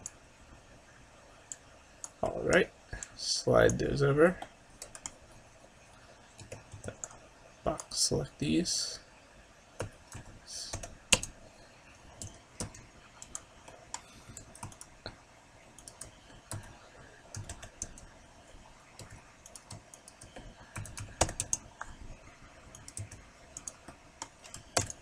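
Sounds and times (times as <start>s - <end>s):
keyboard and mouse clicks: 4.4s - 5.2s, 6.4s - 7.9s, 9.8s - 11.4s, 12.1s - 15.2s, 15.8s - 18.2s, 18.9s - 22.0s, 22.7s - 25.0s.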